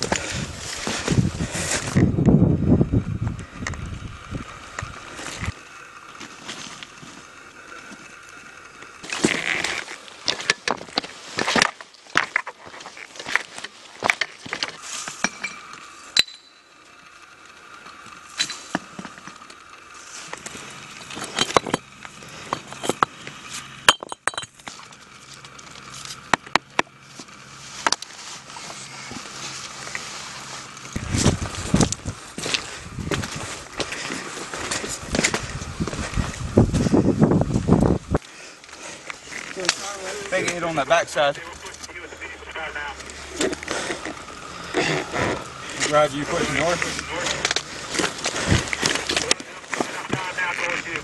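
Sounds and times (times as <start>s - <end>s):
footsteps over loose rock: 0.0s - 2.4s, 8.9s - 15.8s, 18.4s - 40.7s, 43.0s - 51.0s
stones clicking and knocking: 8.8s - 16.5s, 20.3s - 23.1s, 23.8s - 26.9s.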